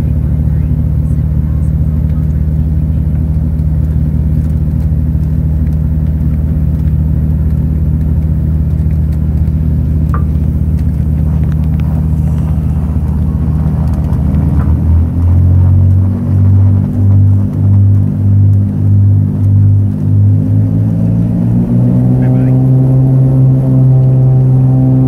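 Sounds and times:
propeller aircraft engine droning: 0.0 - 25.0.

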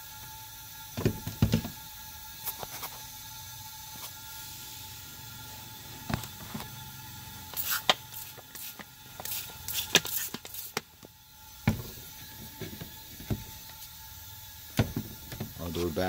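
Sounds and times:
spray bottle spritzing: 7.5 - 11.1.

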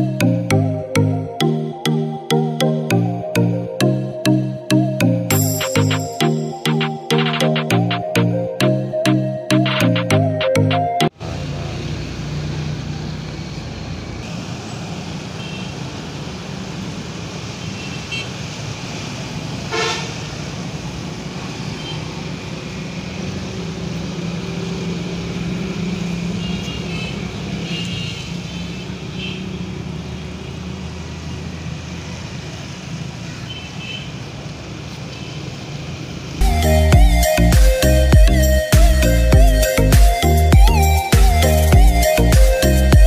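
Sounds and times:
road traffic: 0.0 - 43.0
motorbikes passing: 11.1 - 38.4
vehicle horn toots: 19.7 - 20.2, 26.4 - 29.5.

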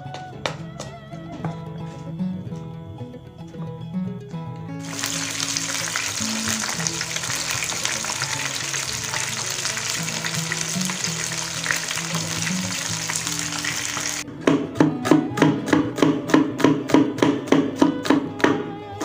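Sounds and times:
fish sizzling in hot oil: 4.8 - 14.2.

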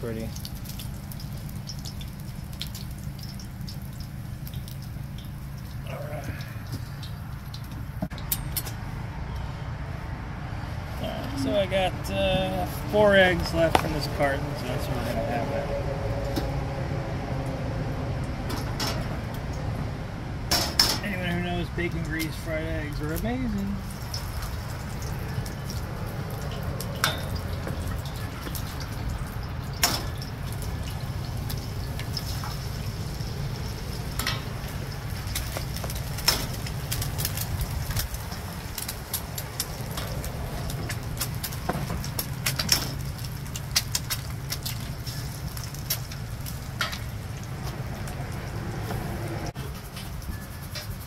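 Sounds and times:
eggs sizzling in grease: 0.0 - 8.0, 20.6 - 51.0
low wind rumble: 0.5 - 51.0.

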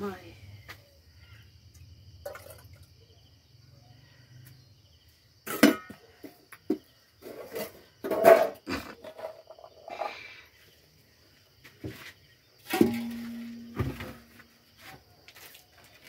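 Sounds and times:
enamel tableware clattering on pots: 7.2 - 9.7, 12.7 - 14.3.

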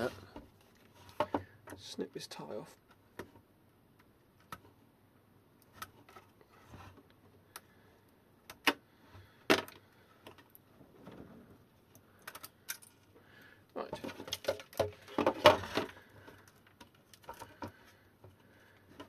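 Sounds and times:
wires clicking in plastic case: 11.9 - 13.1, 13.9 - 19.0.

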